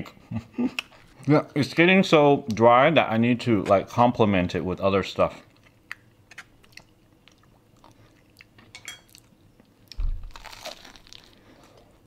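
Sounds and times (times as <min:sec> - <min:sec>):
crunchy bite into fried chicken: 0:10.0 - 0:11.4.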